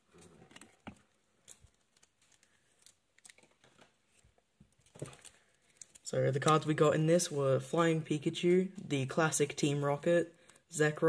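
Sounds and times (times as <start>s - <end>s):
faint clicks of trading cards: 0.2s - 6.6s.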